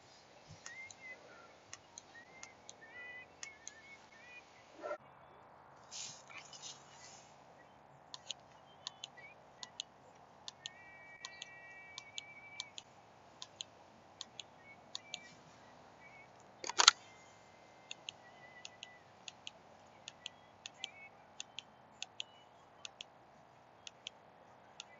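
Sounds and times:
training pistol trigger clicking: 16.6 - 17.0.

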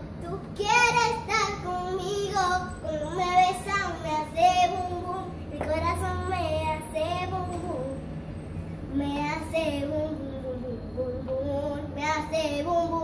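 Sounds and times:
child singing: 0.2 - 8.0, 8.9 - 13.0.

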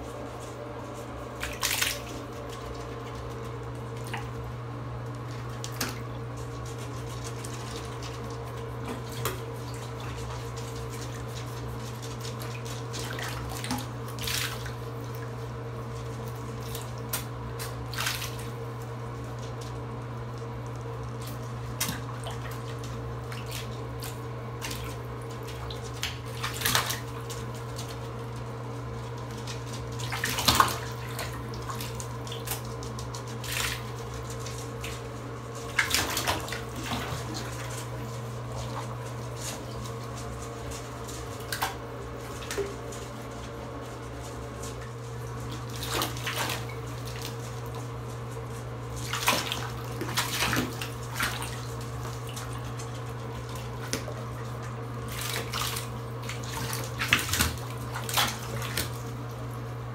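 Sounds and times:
steady background hum: 0.0 - 59.9
small water splashes: 12.4 - 15.2, 16.6 - 18.5, 21.8 - 27.9, 29.9 - 32.7, 33.4 - 34.0, 35.7 - 37.9, 45.4 - 47.8, 49.0 - 59.2.

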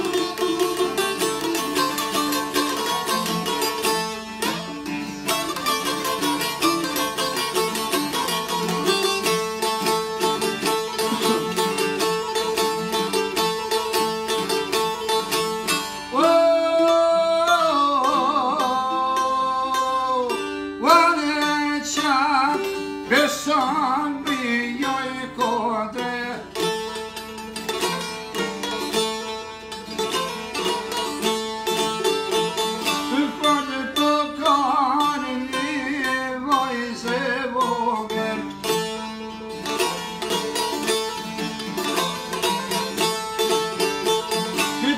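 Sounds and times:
plucked long-necked lutes: 0.0 - 44.9
man singing: 16.1 - 26.8, 32.8 - 39.0, 44.3 - 44.9.

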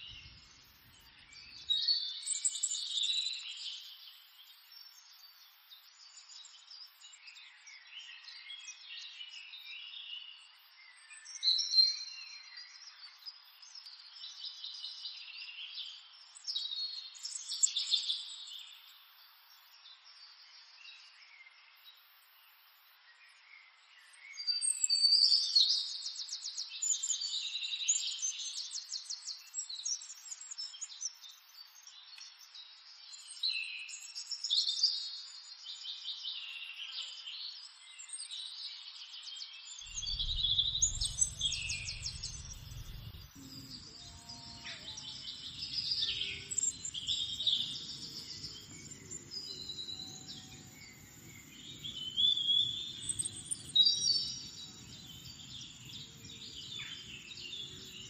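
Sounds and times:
birds singing and chirping: 39.4 - 58.0
low rumble: 39.9 - 43.9.

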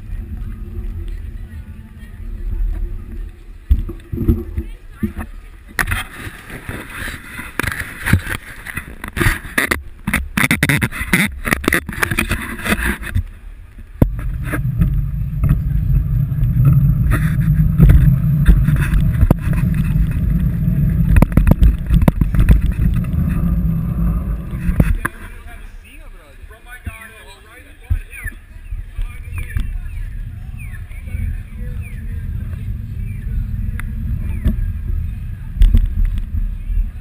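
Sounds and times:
wind and road noise rumble: 0.0 - 37.0
bike knocks and rattles: 14.0 - 23.8.

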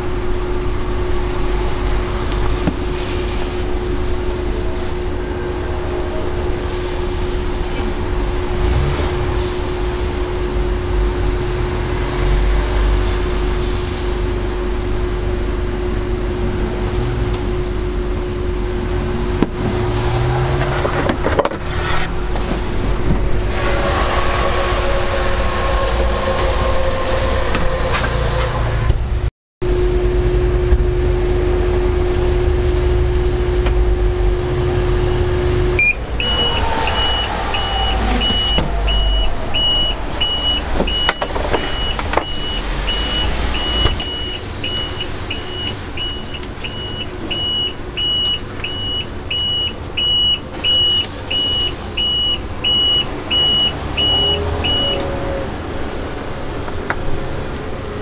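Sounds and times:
traffic engine rumble: 0.0 - 58.0
electronic beeps: 35.8 - 55.0.

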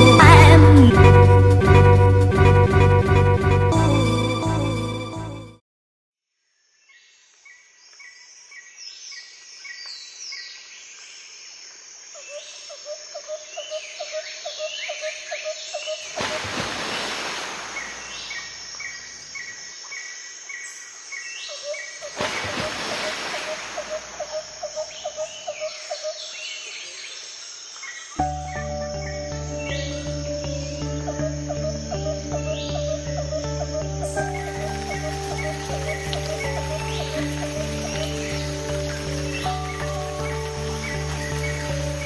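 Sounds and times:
birds chirping: 17.6 - 42.0.

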